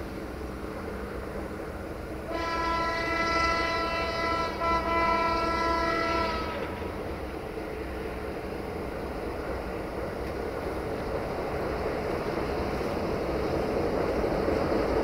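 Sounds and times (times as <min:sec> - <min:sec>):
locomotive horn blasts: 0:02.3 - 0:06.7.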